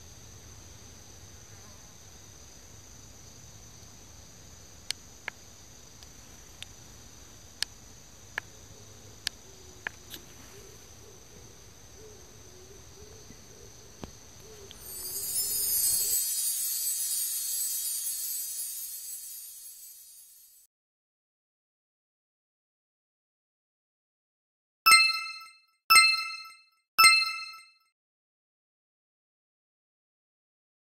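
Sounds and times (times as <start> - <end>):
high-pitched insect chorus: 10.6 - 20.6.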